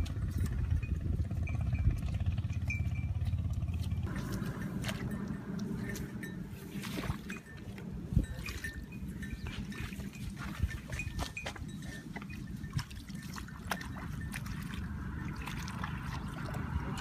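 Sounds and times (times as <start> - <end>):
muddy water trickling and splashing: 3.8 - 17.0.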